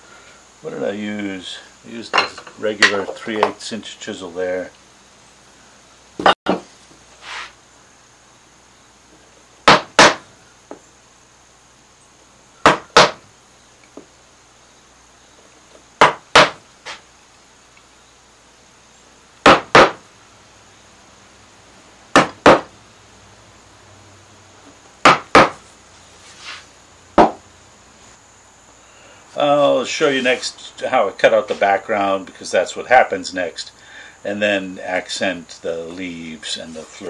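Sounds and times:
wooden mallet striking chisel: 0:25.0 - 0:25.6, 0:27.2 - 0:27.4.

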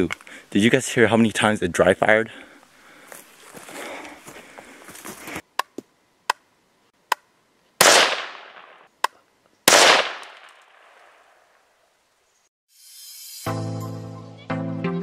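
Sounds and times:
rifle shots with echo: 0:07.8 - 0:08.9, 0:09.7 - 0:11.2
rifle dry fire clicks: 0:09.7 - 0:10.8.

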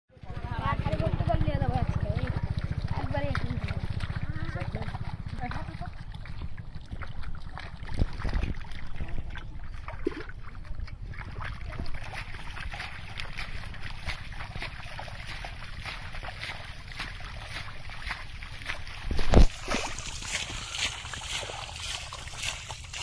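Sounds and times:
hands splashing in muddy water: 0:00.7 - 0:23.0
wind rumble on microphone: 0:05.6 - 0:14.7, 0:18.8 - 0:19.7.

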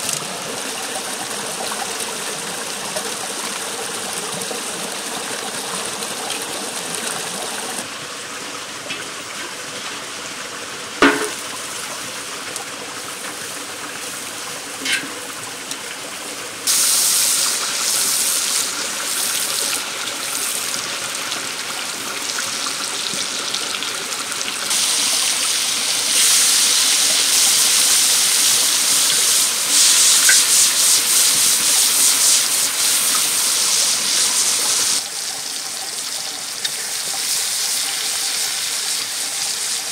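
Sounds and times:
onions frying in oil: 0:11.0 - 0:39.9
hot fat sizzling in a pan: 0:16.6 - 0:39.9.

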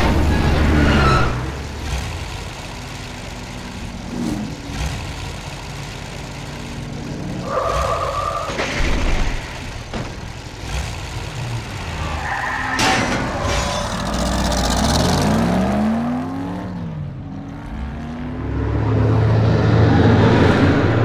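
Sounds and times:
car engines idling: 0:00.0 - 0:16.0
tyre squeal: 0:00.1 - 0:01.6, 0:07.4 - 0:08.8, 0:11.9 - 0:14.2.

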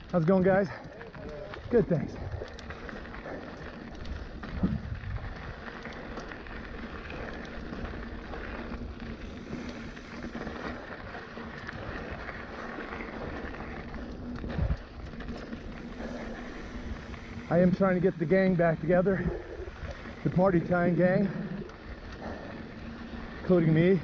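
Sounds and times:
tyre noise on dirt: 0:00.2 - 0:24.0
wind on microphone: 0:04.1 - 0:05.6, 0:13.7 - 0:15.0.

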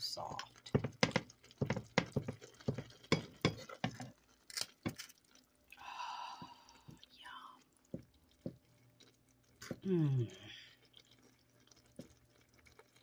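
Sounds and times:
utensil squelching in pot: 0:00.5 - 0:05.0.

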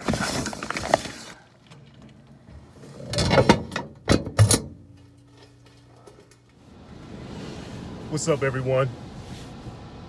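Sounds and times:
metal mailbox door banging shut: 0:03.0 - 0:05.0.

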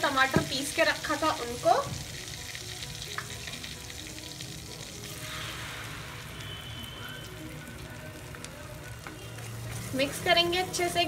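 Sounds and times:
oil sizzling and crackling: 0:00.0 - 0:11.0
paste poured into hot oil: 0:02.1 - 0:07.4.

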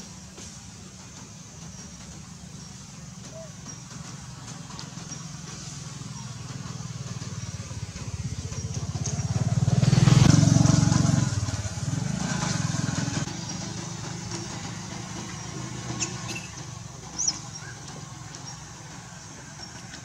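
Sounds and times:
vehicle engine passing: 0:04.0 - 0:20.0
short high squeaks: 0:16.0 - 0:18.6.

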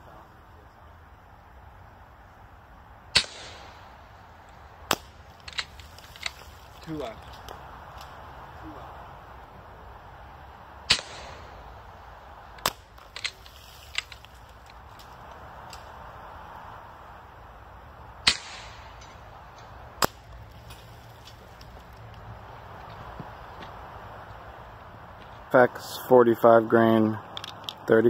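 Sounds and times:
air rifle shot cracks: 0:03.1 - 0:03.8, 0:10.8 - 0:11.7, 0:12.6 - 0:13.4, 0:18.2 - 0:19.2.

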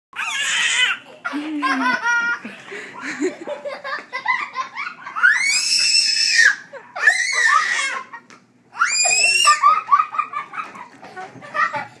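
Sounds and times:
toddler screaming: 0:00.2 - 0:01.0, 0:05.1 - 0:09.7.

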